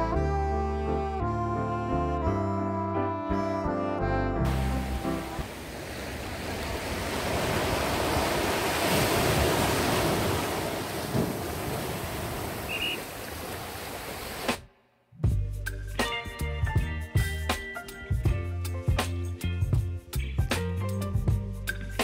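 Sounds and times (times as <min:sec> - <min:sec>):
sea waves breaking on beach: 0:04.5 - 0:14.6.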